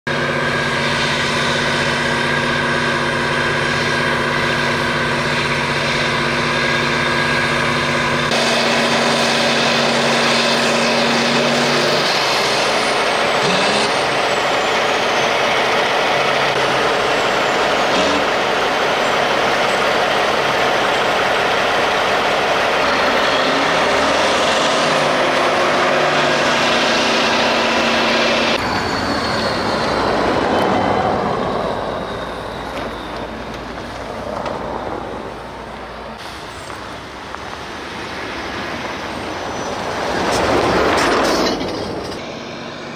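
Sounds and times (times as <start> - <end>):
snowblower running: 0.1 - 28.7
rushing snow noise: 0.1 - 42.9
truck engines running: 0.1 - 42.9.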